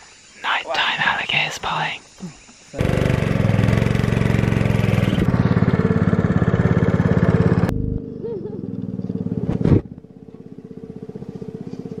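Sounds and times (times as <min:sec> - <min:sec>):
quieter engine sound: 0:02.8 - 0:12.0
small boat motor running: 0:02.8 - 0:12.0.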